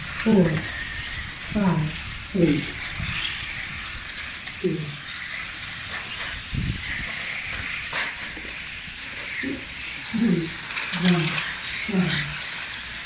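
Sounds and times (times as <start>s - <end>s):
rc car electric motors whining: 0.0s - 13.0s.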